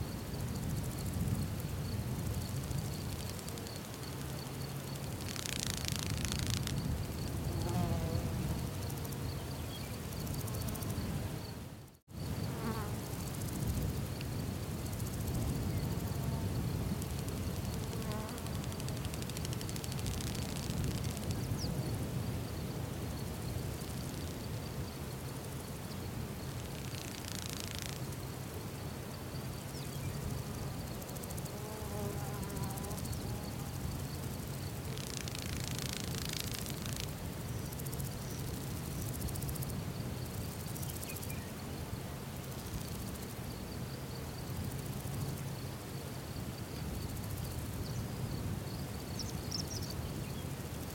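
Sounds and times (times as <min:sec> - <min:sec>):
insects buzzing: 0:00.0 - 0:50.9.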